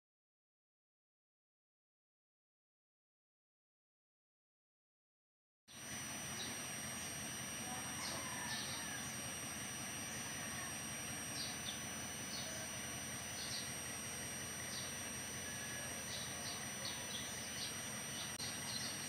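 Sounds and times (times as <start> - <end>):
small birds chirping: 5.7 - 9.4, 10.1 - 19.0.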